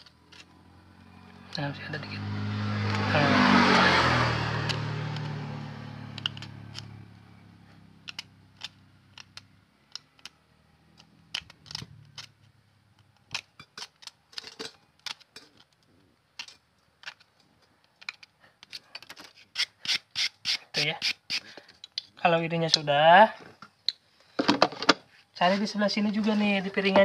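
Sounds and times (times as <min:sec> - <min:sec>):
low engine hum: 0:00.4 - 0:08.0
metal blade scraping brake pad: 0:18.7 - 0:21.6.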